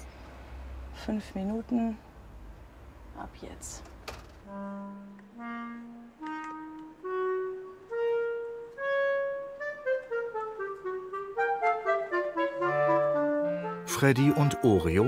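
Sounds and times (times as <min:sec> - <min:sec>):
slow melody instrument music: 0:04.5 - 0:15.0.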